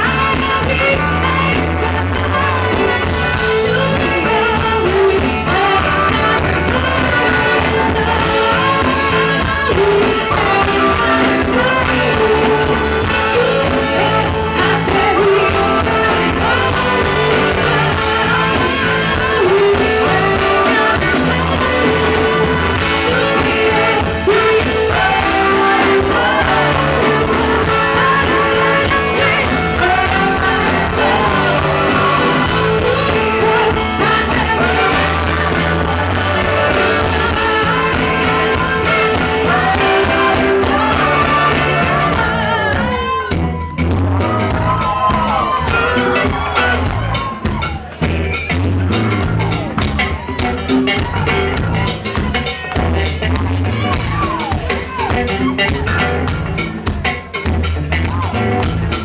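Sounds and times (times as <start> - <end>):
women singing: 0.0 - 43.7
live funk band playing: 0.0 - 59.0.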